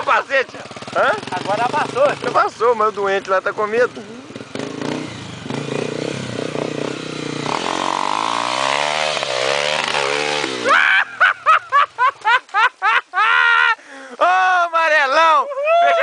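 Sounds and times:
motorcycle engine revving: 0:00.0 - 0:12.2
loud shouting: 0:15.3 - 0:16.0.

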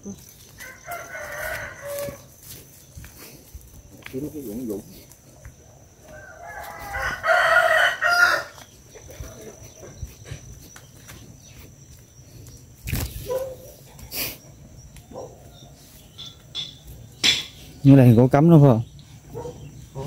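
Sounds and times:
rooster crowing: 0:00.6 - 0:02.4, 0:05.9 - 0:08.7.

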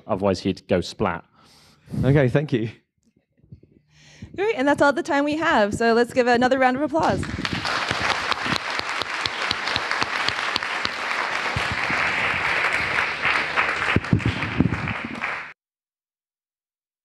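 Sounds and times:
audience applauding: 0:07.0 - 0:15.6.

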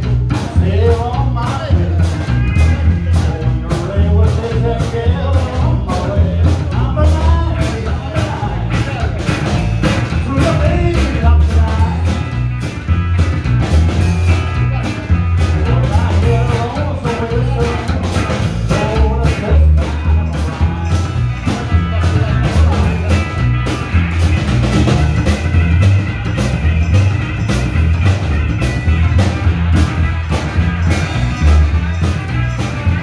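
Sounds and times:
rock and roll band music: 0:00.0 - 0:33.0.

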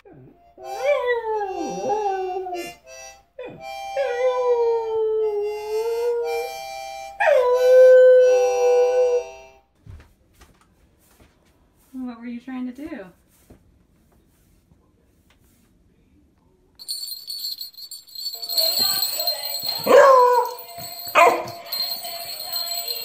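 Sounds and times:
harmonica playing chords: 0:00.4 - 0:04.5, 0:05.2 - 0:09.7.

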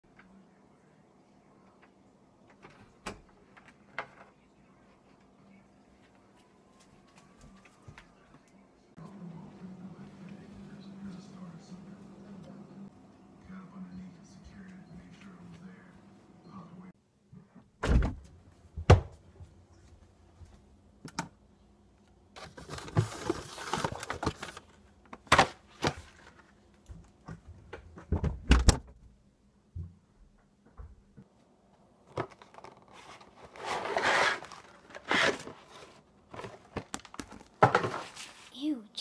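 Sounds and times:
objects knocking and thudding: 0:22.4 - 0:29.0, 0:35.6 - 0:38.2.

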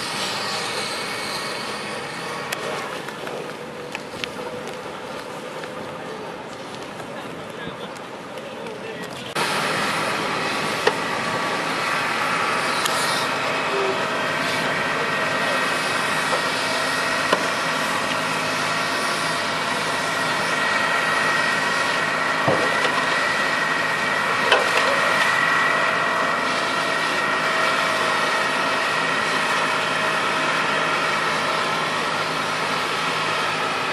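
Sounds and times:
hiss of water and steam: 0:00.0 - 0:02.5, 0:09.4 - 0:33.9
fire engine running: 0:00.0 - 0:33.9.

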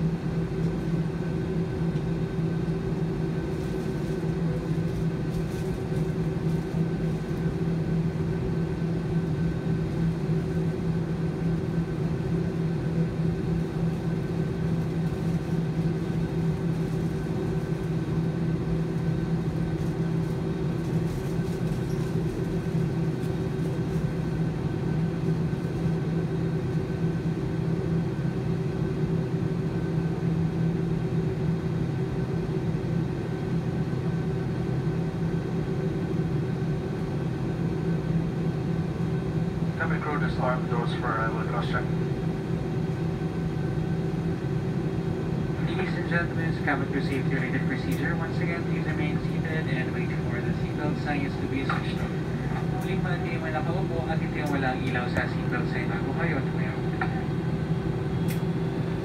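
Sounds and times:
jet engines low hum: 0:00.0 - 0:59.0
faint high whine: 0:45.5 - 0:59.0.

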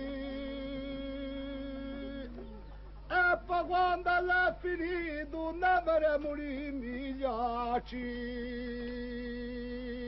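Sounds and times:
man singing unaccompanied: 0:00.0 - 0:10.0.

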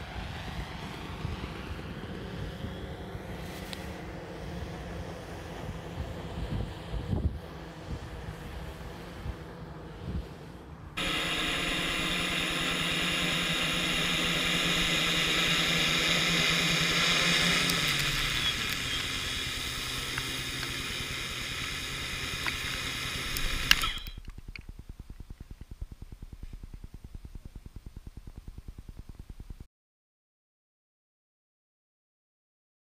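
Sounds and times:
propwash blowing across grass: 0:00.0 - 0:23.9
electric propellers whirring: 0:00.0 - 0:29.6.

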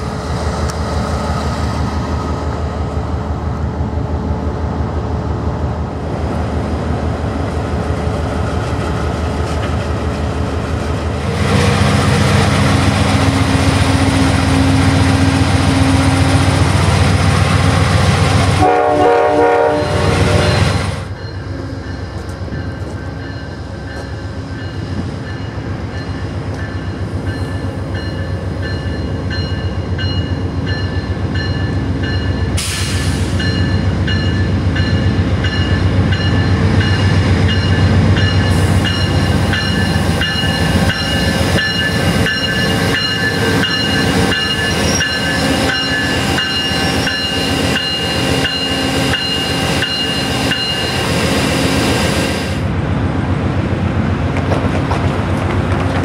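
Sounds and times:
diesel locomotive approaching: 0:00.0 - 0:56.0
train wheels rumbling on rail: 0:00.0 - 0:56.0
train horn chord: 0:18.6 - 0:20.6.

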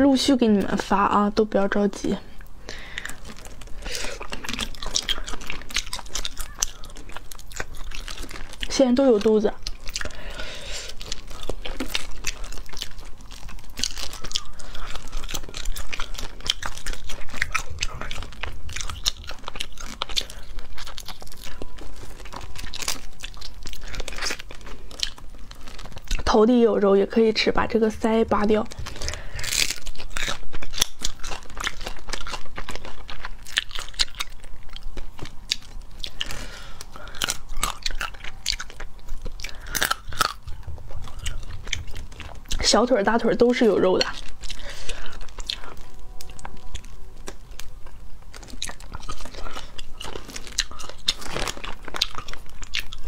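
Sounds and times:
chewing: 0:00.2 - 0:53.0
crayfish shells cracking: 0:01.8 - 0:53.0.

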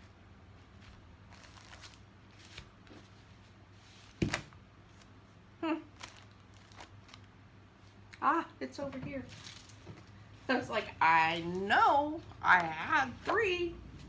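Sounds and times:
plastic bags rustling: 0:00.8 - 0:05.1, 0:05.9 - 0:08.0, 0:09.2 - 0:12.3
person murmuring: 0:05.6 - 0:05.9.

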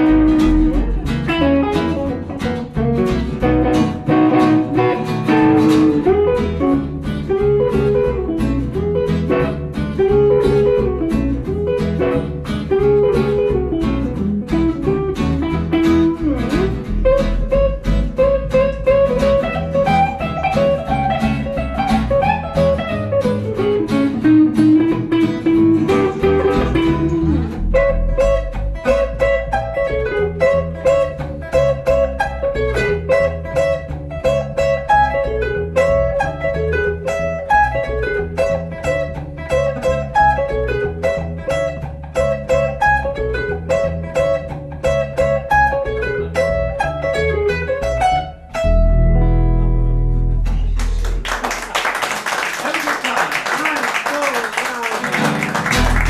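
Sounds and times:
plucked double bass line: 0:00.0 - 0:51.5, 0:55.6 - 0:56.0
acoustic guitar: 0:00.0 - 0:56.0
electric guitar lead: 0:00.0 - 0:56.0.

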